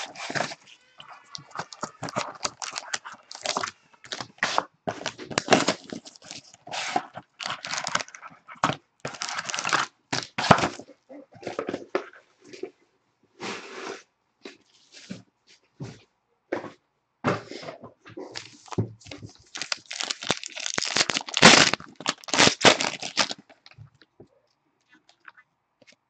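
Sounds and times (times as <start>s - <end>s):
plastic wrapper rustling: 0.0s - 11.6s, 18.4s - 24.2s
cardboard box tearing: 19.6s - 23.4s.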